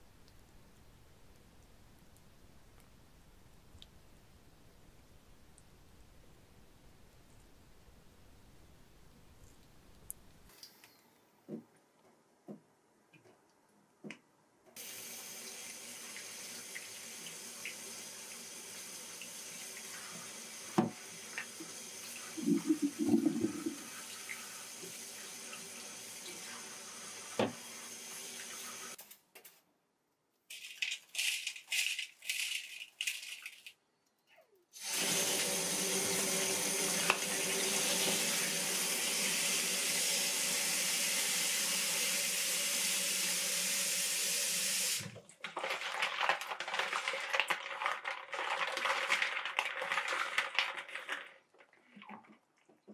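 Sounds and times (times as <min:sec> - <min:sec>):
tap water running into sink: 0:14.8 - 0:29.0, 0:34.8 - 0:51.3.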